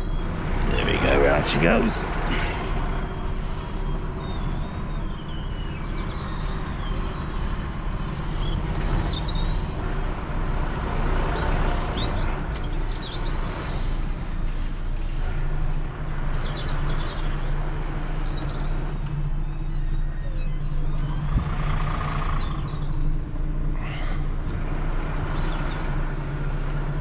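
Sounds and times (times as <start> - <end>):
truck diesel engine running: 0.0 - 19.2
faint high squeaks: 19.4 - 21.3.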